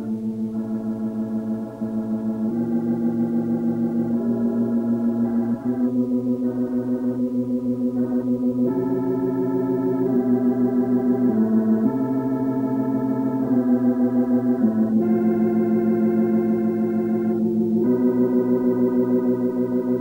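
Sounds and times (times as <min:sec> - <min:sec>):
slow held chords with tremolo: 0:00.0 - 0:20.0.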